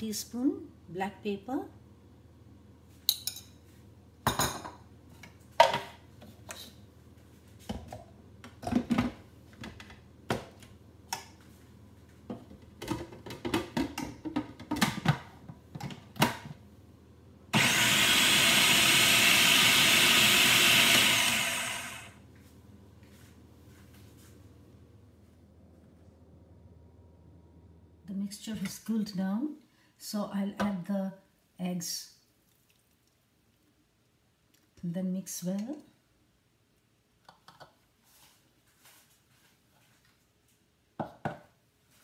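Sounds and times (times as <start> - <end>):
food processor motor running: 17.5 - 22.2.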